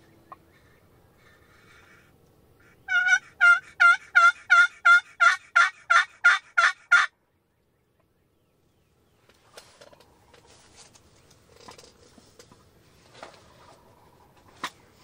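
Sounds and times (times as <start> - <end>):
turkey yelping: 2.6 - 7.1.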